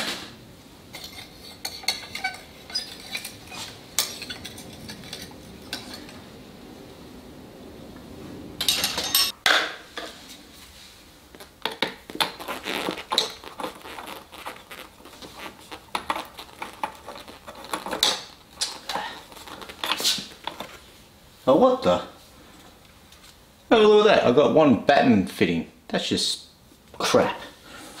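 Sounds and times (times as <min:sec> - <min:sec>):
light bulbs clinking and scraping: 0:00.9 - 0:06.3, 0:08.6 - 0:09.4, 0:16.0 - 0:20.8.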